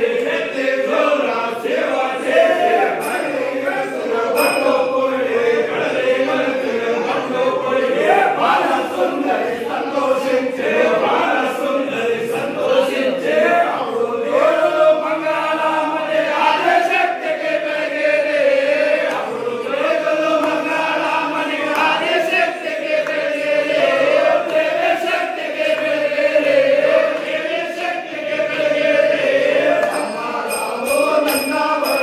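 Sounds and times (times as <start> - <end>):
men chanting in unison: 0.0 - 32.0.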